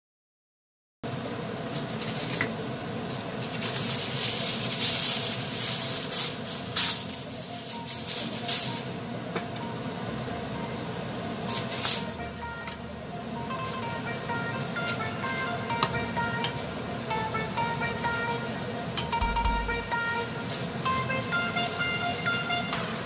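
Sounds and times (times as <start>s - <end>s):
kitchen foil rustling and crinkling: 1.6s - 9.0s, 11.5s - 12.2s, 20.1s - 21.8s.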